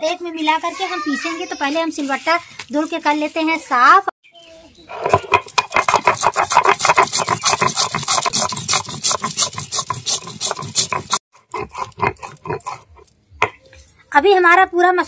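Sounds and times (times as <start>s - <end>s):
stone grinding on stone: 4.9s - 13.1s.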